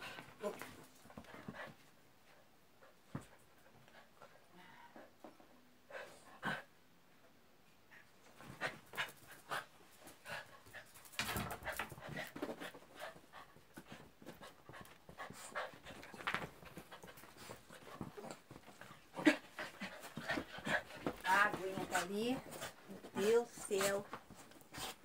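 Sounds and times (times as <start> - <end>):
dogs panting: 8.4 - 25.0.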